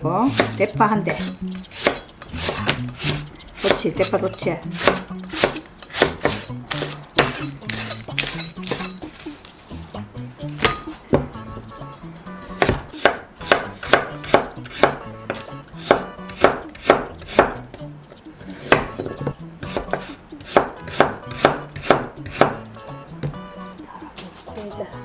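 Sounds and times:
knife slicing on wooden board: 0:01.2 - 0:03.9, 0:04.8 - 0:09.0.

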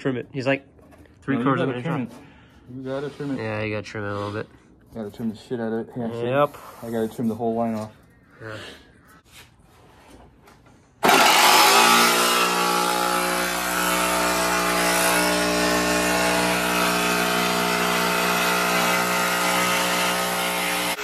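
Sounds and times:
power saw cutting panel: 0:11.0 - 0:21.0.

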